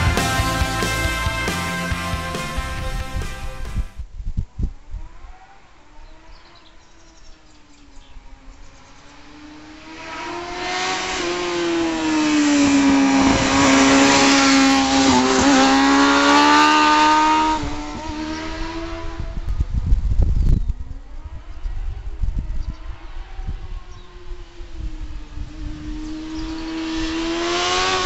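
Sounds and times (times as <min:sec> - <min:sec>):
motorcycle engine high-revving: 0:08.8 - 0:20.2, 0:20.8 - 0:28.0.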